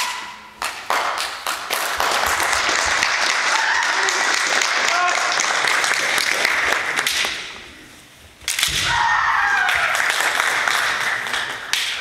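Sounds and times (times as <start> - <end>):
spectators applauding: 0.7 - 7.1, 9.7 - 11.8
long drawn-out shout: 3.4 - 5.4, 8.8 - 10.1.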